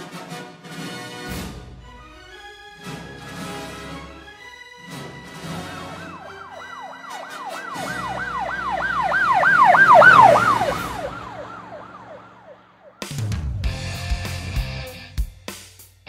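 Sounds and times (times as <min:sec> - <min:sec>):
emergency siren yelping: 0:05.4 - 0:13.2.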